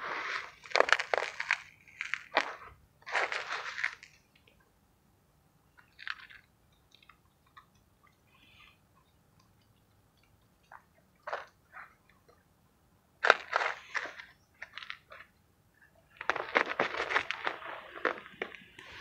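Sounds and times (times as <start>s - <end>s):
fingers crushing mothballs: 0.2s - 4.3s, 16.2s - 18.9s.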